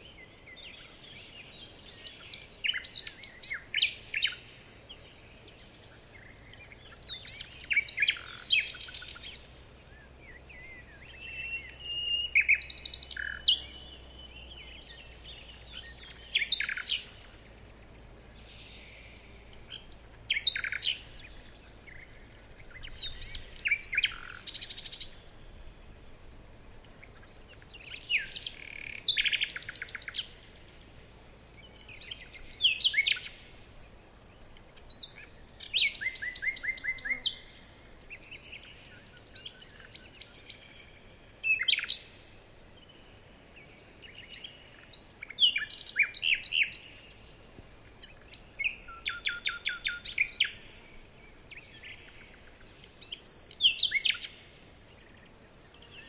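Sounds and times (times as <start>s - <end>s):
faint background hiss: 0.0s - 56.0s
songbirds trilling: 0.0s - 56.0s.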